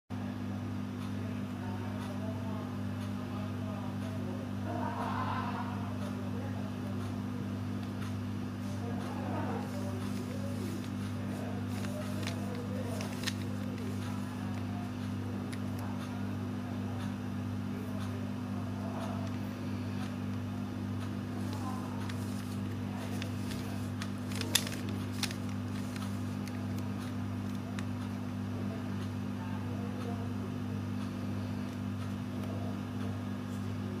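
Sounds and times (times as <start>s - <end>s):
steady low hum: 0.1s - 34.0s
faint distant voices: 1.0s - 34.0s
clicks: 21.0s - 28.2s.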